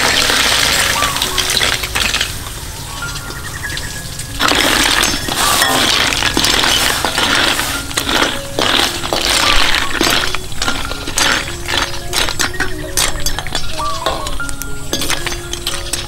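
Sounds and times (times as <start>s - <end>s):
snail shells clattering in wok: 0.0s - 2.4s, 4.2s - 16.0s
metal spatula stirring: 4.4s - 16.0s.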